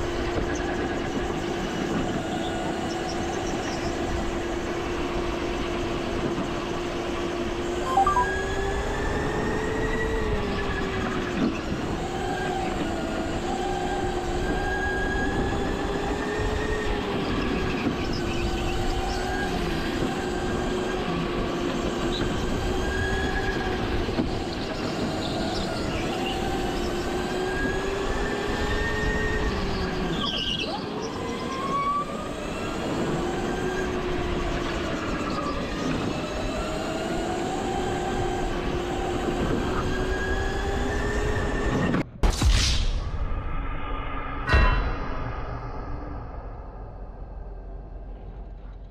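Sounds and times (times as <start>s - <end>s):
go-kart engine droning: 8.4s - 42.0s.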